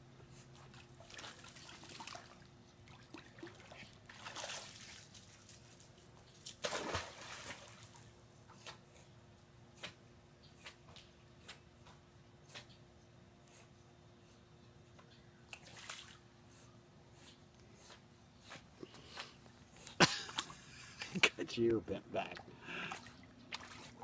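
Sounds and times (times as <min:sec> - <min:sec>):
water sloshing and dripping: 0:00.6 - 0:08.1, 0:22.3 - 0:24.0
dog splashing into pool: 0:00.7 - 0:08.1.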